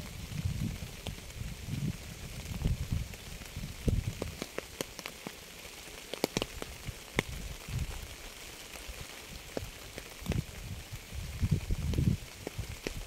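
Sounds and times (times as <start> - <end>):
rain hiss: 0.0 - 13.0
raindrops tapping on a surface: 0.0 - 13.0.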